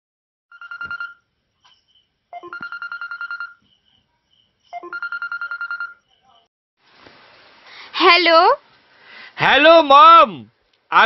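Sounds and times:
phone ringtone pulsing electronic tone: 0:00.5 - 0:01.3, 0:02.3 - 0:03.6, 0:04.7 - 0:06.1.

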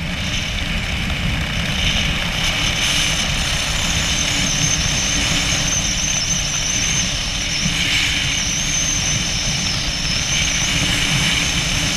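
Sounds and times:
wind buffeting microphone: 0:00.0 - 0:11.9
faint high whistle: 0:04.1 - 0:11.7.

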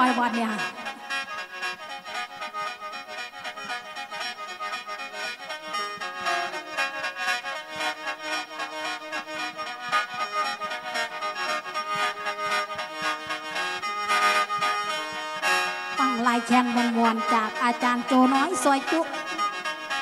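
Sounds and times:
mouth organ melody over drone: 0:15.9 - 0:19.9.

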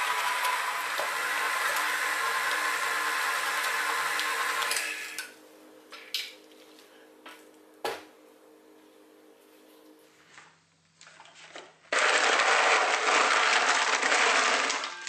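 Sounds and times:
stand mixer running: 0:00.0 - 0:05.4, 0:11.9 - 0:15.0.

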